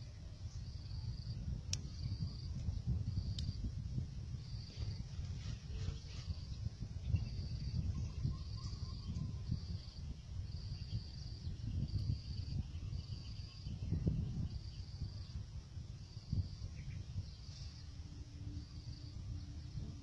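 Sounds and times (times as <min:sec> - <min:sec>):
insect trilling: 0:07.2 - 0:15.4.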